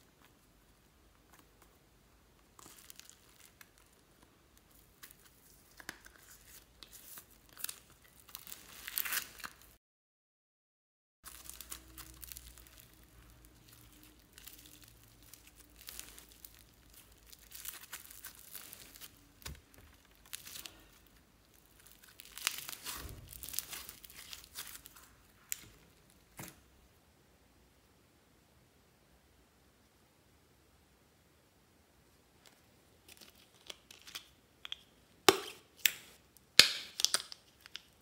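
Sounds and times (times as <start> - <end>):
slime crackling and popping: 2.4 - 9.8, 11.3 - 26.6, 33.1 - 38.0.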